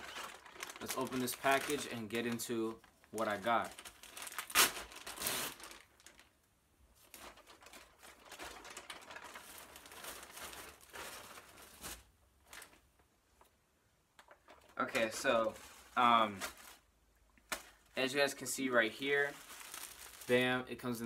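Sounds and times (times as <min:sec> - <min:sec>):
packaging tearing: 0:00.0 - 0:02.5, 0:03.1 - 0:06.3, 0:07.1 - 0:12.8, 0:19.2 - 0:20.4
packaging crinkling and rustling: 0:00.0 - 0:06.4, 0:07.0 - 0:13.1, 0:14.2 - 0:16.9, 0:17.5 - 0:20.6.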